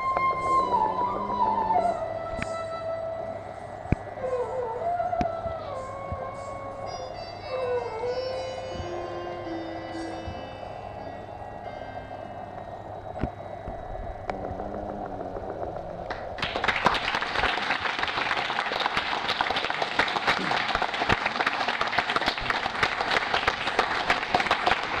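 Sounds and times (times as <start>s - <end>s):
audience applauding: 16.0s - 25.0s.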